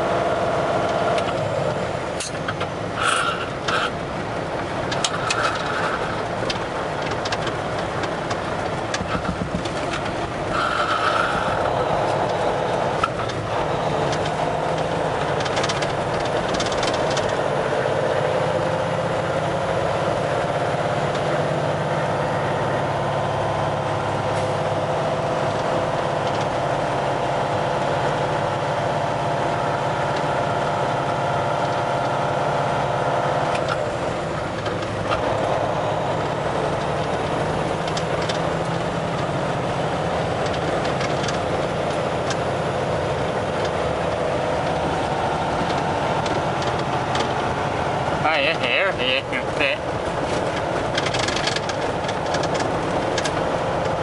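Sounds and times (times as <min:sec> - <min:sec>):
truck engine running: 0:00.0 - 0:54.0
tyres on gravel: 0:01.3 - 0:17.7, 0:33.5 - 0:54.0.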